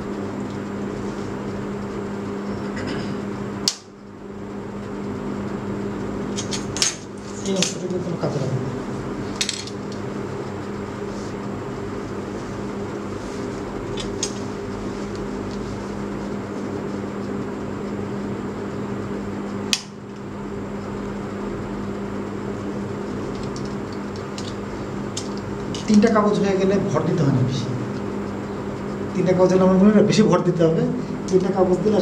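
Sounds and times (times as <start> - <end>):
machine hum: 0.0 - 32.0
sharp click: 19.7 - 20.0.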